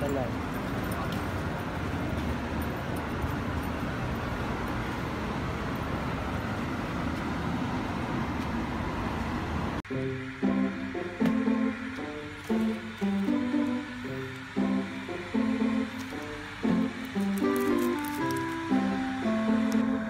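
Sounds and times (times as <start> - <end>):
traffic on busy road: 0.0 - 9.8.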